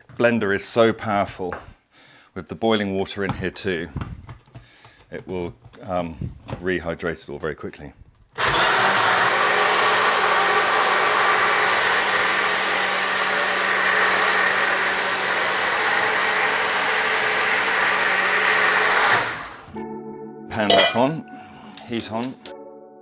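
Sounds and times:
blender running: 8.4 - 19.8.

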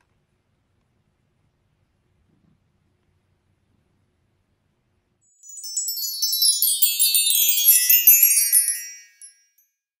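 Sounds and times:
tinkling chime: 5.3 - 9.8.

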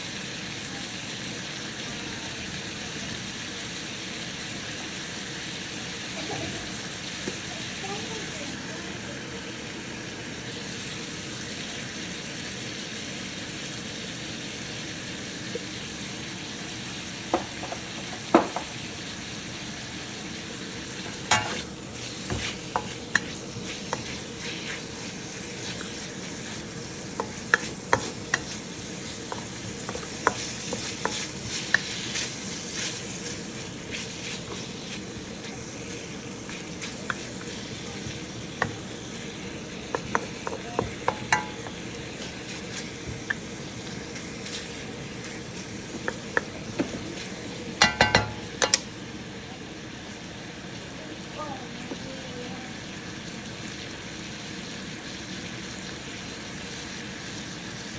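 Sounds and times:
bacon sizzling in a wok: 0.0 - 57.9
spatula tapping and scraping pan: 22.2 - 24.2, 27.1 - 32.9, 39.8 - 43.4, 47.8 - 48.9.

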